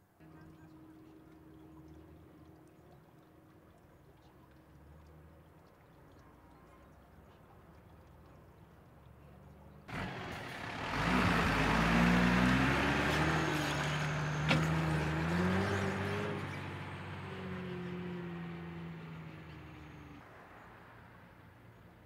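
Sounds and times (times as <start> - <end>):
vehicle engine accelerating: 9.9 - 20.2.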